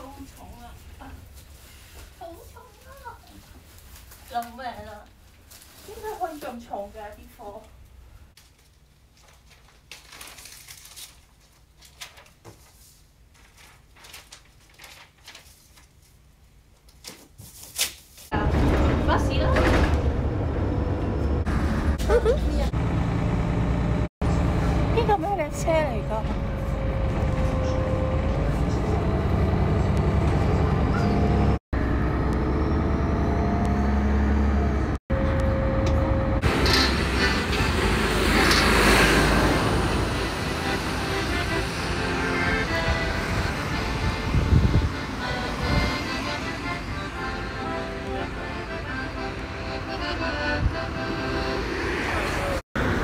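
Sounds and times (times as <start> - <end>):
cardboard and paper rustling: 0.2 - 6.7, 8.4 - 16.2
road traffic rumble: 18.3 - 53.0.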